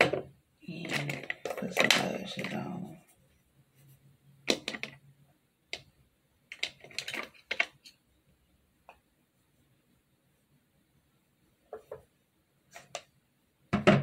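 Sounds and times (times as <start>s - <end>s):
plastic items clicking and tapping: 0.0s - 2.8s, 4.4s - 5.0s, 5.7s - 8.0s.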